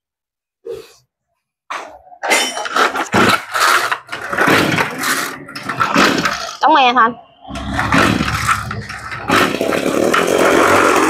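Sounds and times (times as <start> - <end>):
engine turning over: 7.5 - 11.0
recoil starter cord pulls: 7.5 - 11.0.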